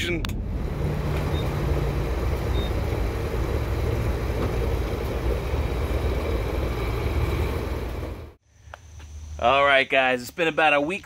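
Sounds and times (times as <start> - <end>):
fuel pump humming: 0.2 - 8.4.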